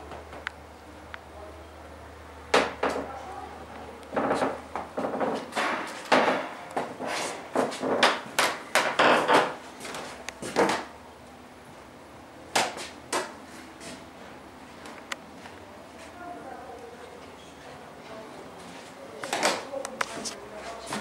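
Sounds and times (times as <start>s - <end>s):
sharp knocks and clatters: 4.1s - 10.9s.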